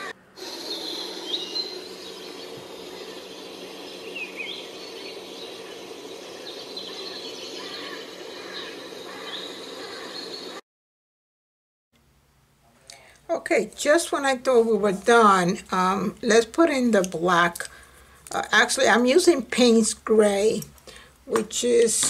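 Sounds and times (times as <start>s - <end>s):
outdoor background noise: 0.0s - 10.6s, 12.0s - 22.0s
small birds chirping: 0.0s - 10.6s.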